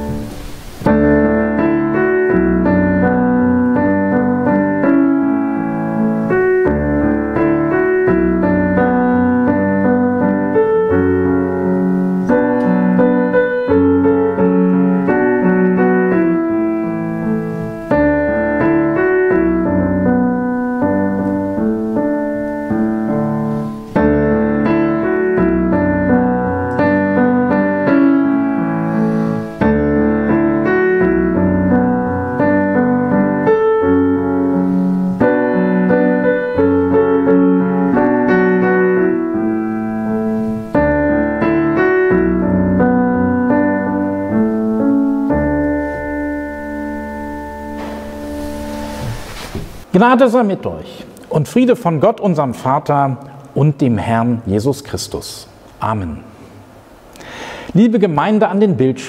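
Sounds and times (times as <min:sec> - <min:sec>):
solo piano music: 0:00.0 - 0:50.0.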